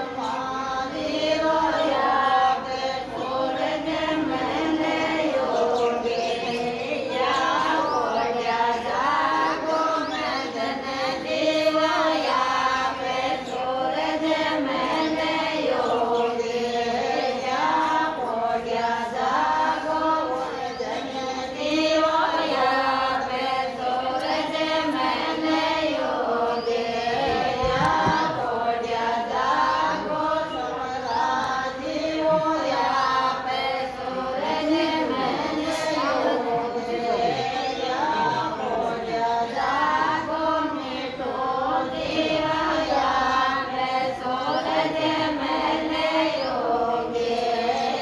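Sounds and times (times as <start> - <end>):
women singing in unison: 0.0 - 48.0.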